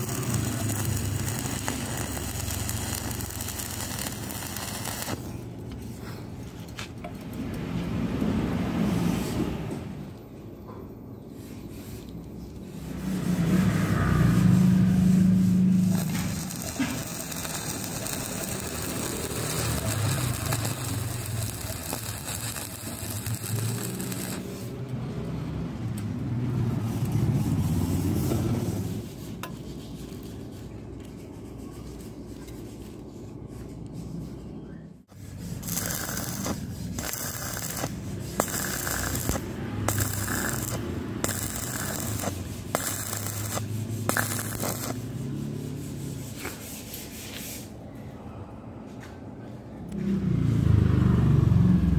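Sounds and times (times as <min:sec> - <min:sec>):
welding arc crackling: 0:00.0 - 0:05.3, 0:14.6 - 0:24.8, 0:35.1 - 0:45.8.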